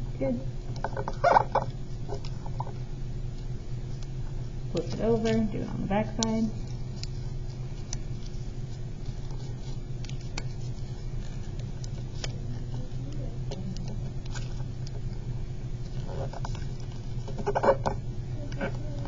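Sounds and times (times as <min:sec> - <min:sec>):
steady low hum: 0:00.0 - 0:19.0
paper rustling and crinkling: 0:04.7 - 0:15.2, 0:15.8 - 0:19.0.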